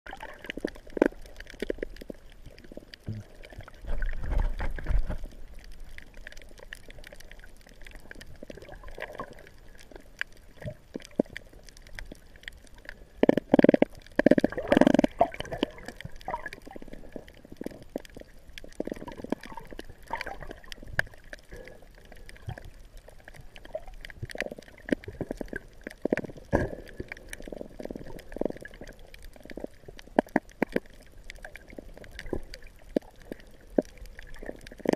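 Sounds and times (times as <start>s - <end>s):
rushes of water: 0.1s - 34.9s
seawater sloshing and gurgling: 2.7s - 5.6s, 13.5s - 22.7s.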